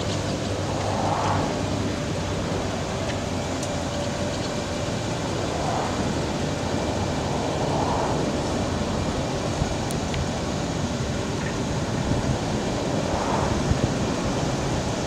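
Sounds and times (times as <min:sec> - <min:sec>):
aerial boom raising: 0:00.0 - 0:01.9.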